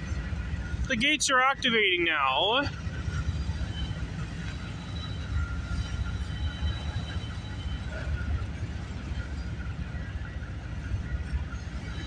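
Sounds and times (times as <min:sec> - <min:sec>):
freight train rumbling on rails: 0:00.0 - 0:12.0.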